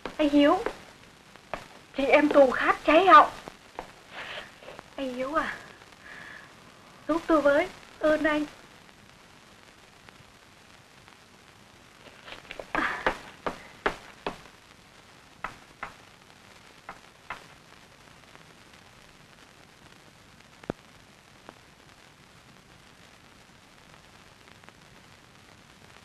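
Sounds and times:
film soundtrack hiss: 0.0 - 26.0
sharp knocks: 12.5 - 14.4, 15.4 - 16.0.

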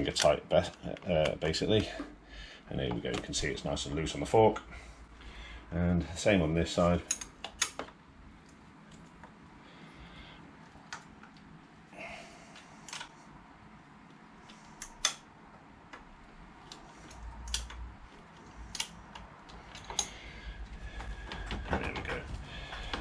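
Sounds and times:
hand tool clicking on bolt: 16.7 - 17.8, 18.7 - 20.2.

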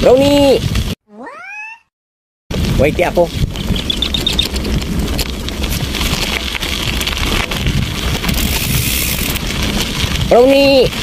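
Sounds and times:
wind buffeting microphone: 2.5 - 11.0.

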